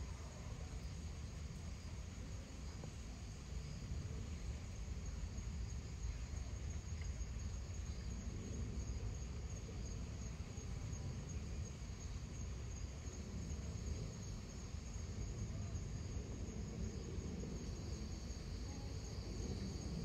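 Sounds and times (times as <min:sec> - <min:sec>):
high insect trill: 0:00.0 - 0:20.0.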